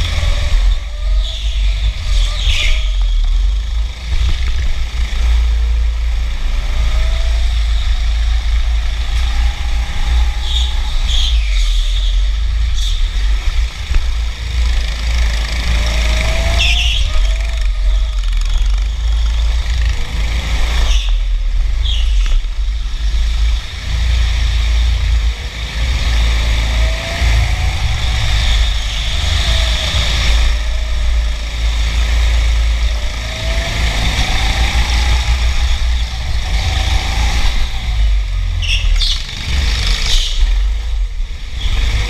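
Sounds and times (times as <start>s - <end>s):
go-kart motor revving: 0.0s - 42.0s
wind rumble on microphone: 0.0s - 42.0s.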